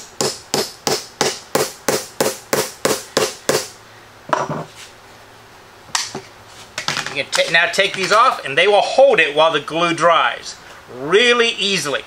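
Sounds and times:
hammer tapping metal: 0.0s - 3.7s.

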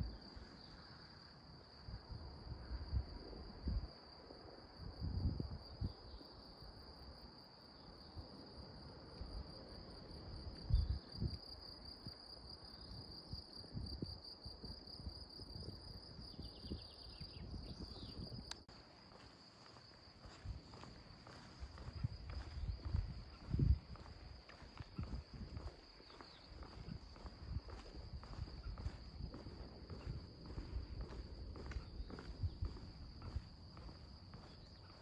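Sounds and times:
crickets chirring: 0.0s - 35.0s.

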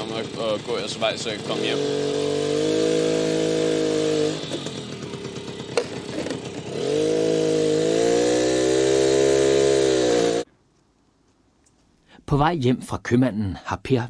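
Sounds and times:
mobility scooter motor humming: 1.4s - 10.4s.

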